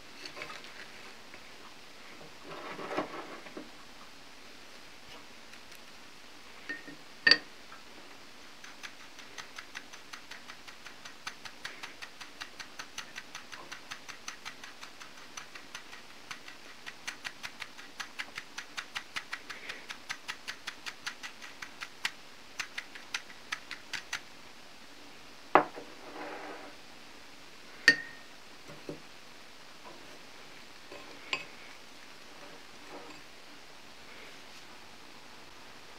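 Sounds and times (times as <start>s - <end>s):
chopsticks clicking against bowl: 8.6s - 24.3s.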